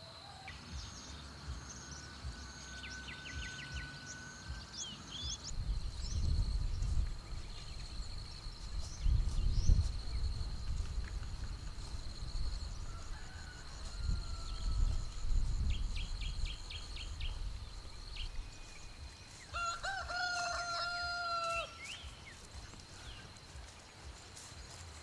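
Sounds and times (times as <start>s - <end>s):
bird chirps: 0.2s - 10.3s
high-pitched whine: 0.6s - 7.1s
rooster crowing: 12.7s - 15.3s, 19.5s - 21.9s.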